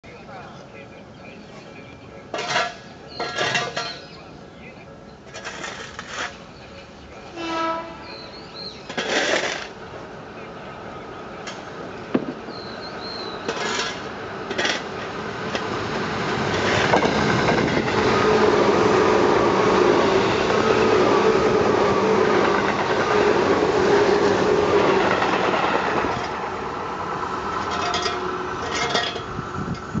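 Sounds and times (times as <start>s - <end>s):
wheels clacking over rail joints: 2.2s - 4.3s, 5.2s - 6.6s, 8.5s - 10.0s, 11.4s - 30.0s
train horn blasts: 7.3s - 8.3s
electric train passing: 9.4s - 30.0s.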